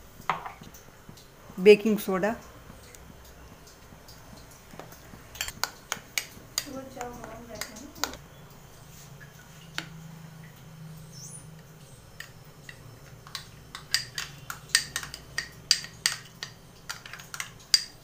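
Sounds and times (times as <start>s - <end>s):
spoon clinking against glass bowl: 12.2s - 18.0s.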